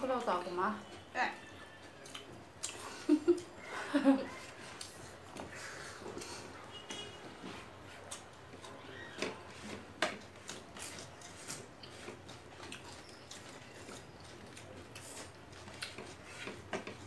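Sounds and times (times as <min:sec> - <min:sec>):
chewing clicks and smacks: 0:01.9 - 0:03.5, 0:04.6 - 0:05.5, 0:08.0 - 0:09.4, 0:10.0 - 0:17.0
fingers scraping food on plates: 0:04.4 - 0:17.0.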